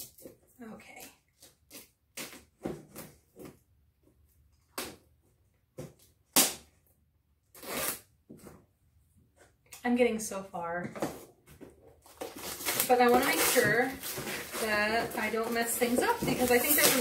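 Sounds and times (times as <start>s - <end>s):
cardboard box scraping: 12.3s - 17.0s.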